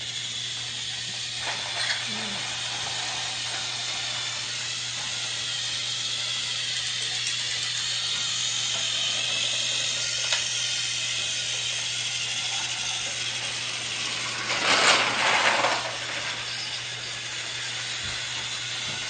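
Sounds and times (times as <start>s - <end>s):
toy motor and gears whirring: 0.0s - 19.0s
toy engine click: 0.2s - 14.0s
loud burst of noise: 13.3s - 17.6s.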